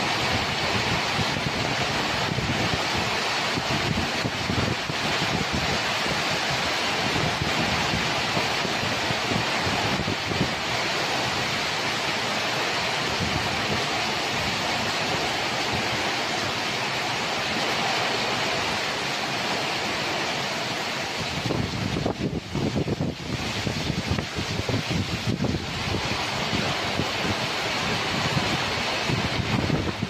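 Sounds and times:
wind buffeting microphone: 0.0 - 12.1, 12.9 - 16.3, 21.1 - 30.0
heavy rain pouring: 0.0 - 30.0
wind through trees: 0.0 - 30.0.

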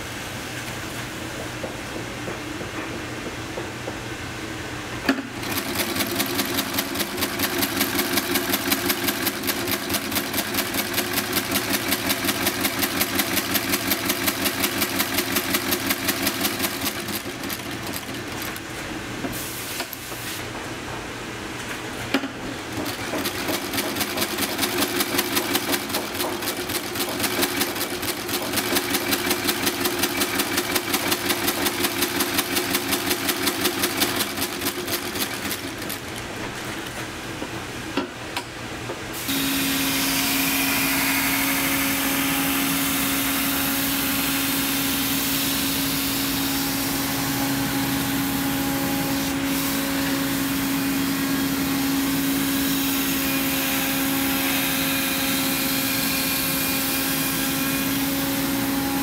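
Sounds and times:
sewing machine rattling: 5.3 - 18.6, 22.7 - 36.3.

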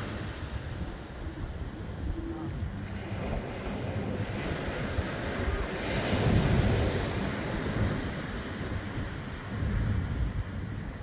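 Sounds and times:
ocean surf breaking: 0.0 - 11.0
wind rumbling on microphone: 0.0 - 11.0.

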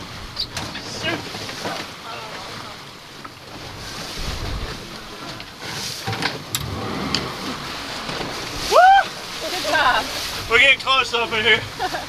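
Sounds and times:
water washing against hull: 0.0 - 12.0
wind buffeting microphone: 3.5 - 5.4.

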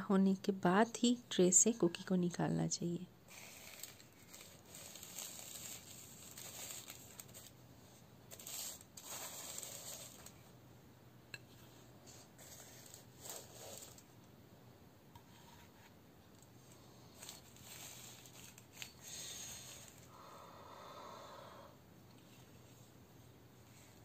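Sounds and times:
foil crinkling: 3.3 - 7.6, 8.3 - 10.4, 12.5 - 14.0, 17.2 - 20.1.

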